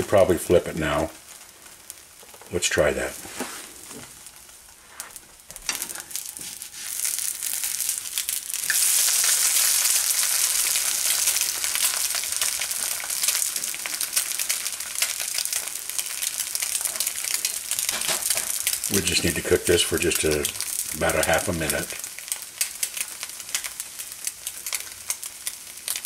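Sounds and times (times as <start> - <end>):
egg sizzling in oil: 0.0 - 26.0.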